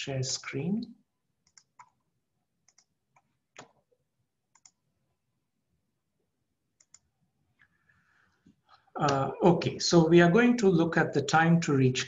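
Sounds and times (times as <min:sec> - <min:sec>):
computer mouse clicks: 0:01.4 - 0:02.0, 0:02.6 - 0:03.8, 0:04.5 - 0:04.8, 0:06.8 - 0:07.1.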